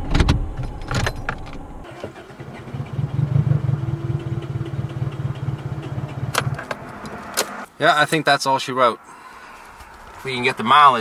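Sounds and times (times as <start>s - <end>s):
engine cranking without starting: 0.6s - 7.7s.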